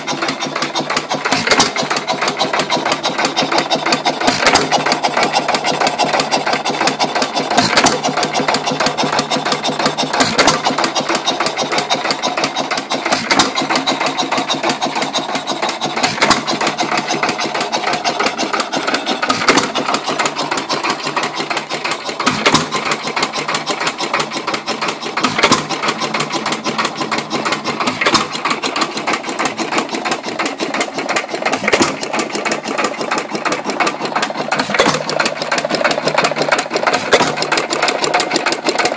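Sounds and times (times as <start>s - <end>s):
stationary engine clatter: 0.0s - 38.9s
engine firing bang: 22.2s - 22.8s.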